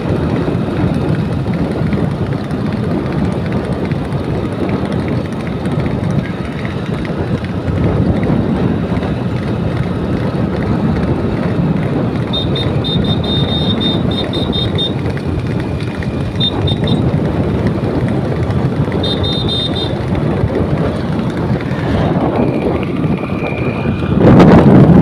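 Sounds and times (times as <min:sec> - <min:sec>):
vehicle running noise: 0:00.0 - 0:25.0
wind rushing over microphone: 0:00.0 - 0:25.0
high steady tone: 0:12.3 - 0:15.0.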